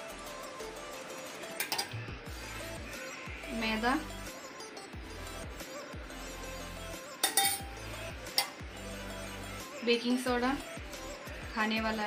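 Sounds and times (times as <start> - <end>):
soft background music: 0.0 - 12.0
steel bowl clinking: 1.6 - 2.0, 7.2 - 8.6.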